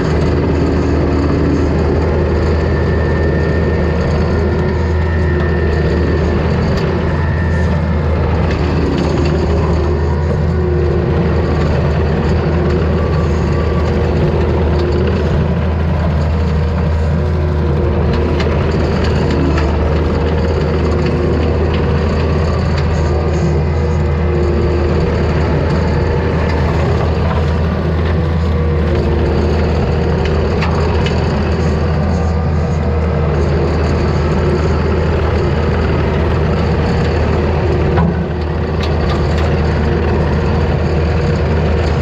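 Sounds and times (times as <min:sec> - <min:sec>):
diesel engine running under load: 0:00.0 - 0:42.0.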